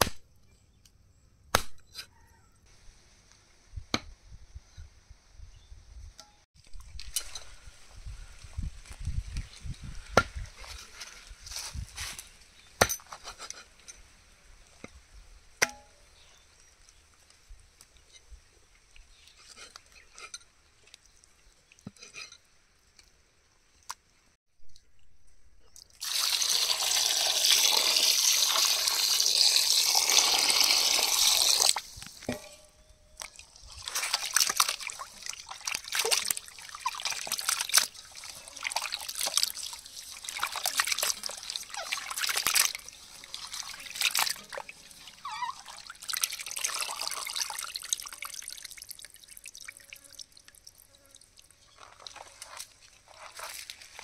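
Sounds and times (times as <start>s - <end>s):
water pouring: 25.8s - 32.3s, 33.2s - 52.3s
water splashing and sloshing: 33.2s - 54.0s.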